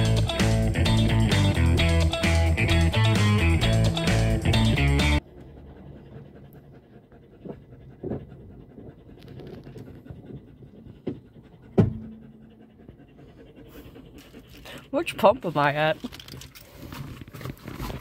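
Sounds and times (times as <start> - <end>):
dog panting: 0.0 - 18.0
knocks and clunks: 10.4 - 12.5.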